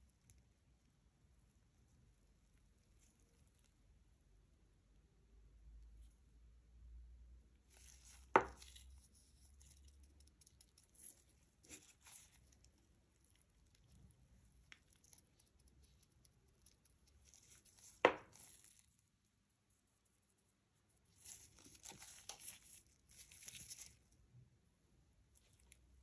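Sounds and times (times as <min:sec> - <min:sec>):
gloves rustling: 0:07.7 - 0:16.1, 0:17.1 - 0:19.2, 0:19.8 - 0:24.3
crinkly crackling rustles: 0:07.7 - 0:24.4.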